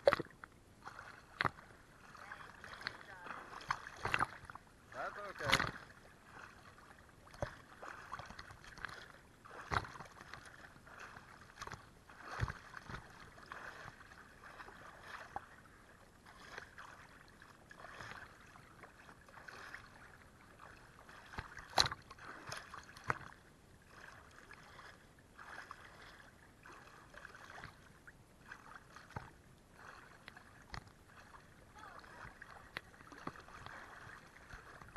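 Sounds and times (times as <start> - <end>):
water splashing against housing: 0.0 - 15.5, 16.3 - 27.9
waves lapping against camera: 0.0 - 34.9.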